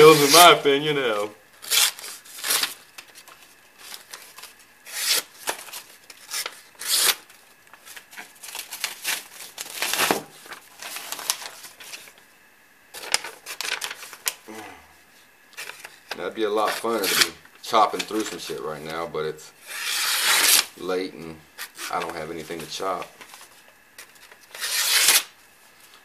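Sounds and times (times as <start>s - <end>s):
paper rustling: 0.0s - 0.9s, 1.7s - 12.2s, 13.0s - 14.4s, 21.6s - 25.2s
knife slicing through paper: 24.5s - 25.3s.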